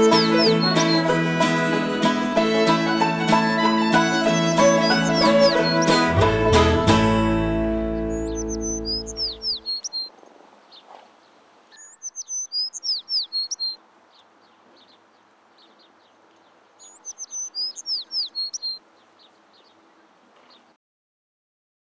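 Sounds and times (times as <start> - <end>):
songbird whistling: 0.0 - 1.2, 4.1 - 6.2, 8.0 - 10.1, 11.7 - 13.8, 16.8 - 18.8
faint bird chirps: 4.3 - 6.1, 8.0 - 10.1, 11.7 - 20.8.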